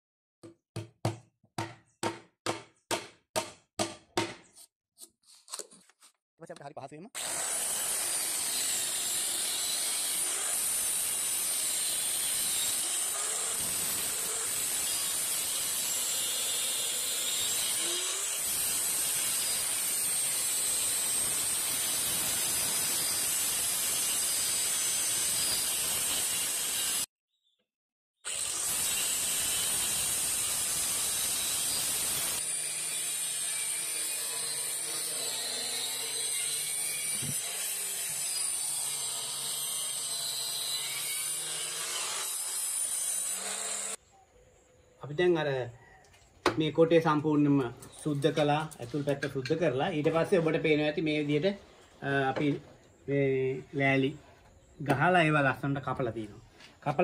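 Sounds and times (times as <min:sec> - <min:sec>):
electric circular saw cutting wood: 0:07.2 - 0:27.1, 0:28.2 - 0:44.0.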